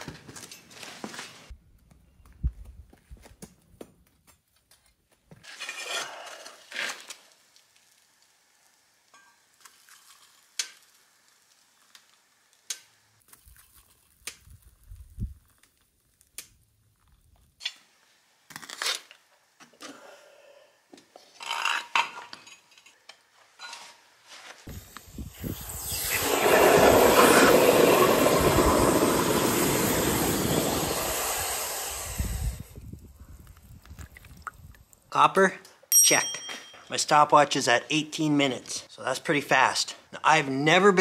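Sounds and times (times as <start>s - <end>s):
rustling scrapes: 5.4s - 7.2s, 23.6s - 24.8s
loud steady hiss: 24.7s - 32.8s
metal tools clinking: 35.9s - 37.0s.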